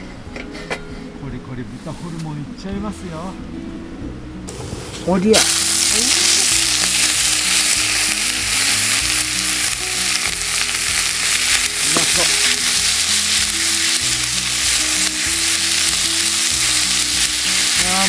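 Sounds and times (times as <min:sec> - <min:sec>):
meat sizzling in a skillet: 0:05.4 - 0:18.0.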